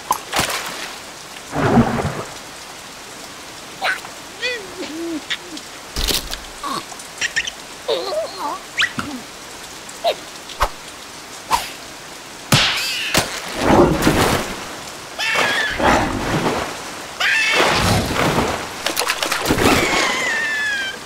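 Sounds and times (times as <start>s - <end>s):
steady rain: 0.0s - 21.0s
cartoon splashing and crashing: 12.5s - 16.6s, 17.2s - 20.4s.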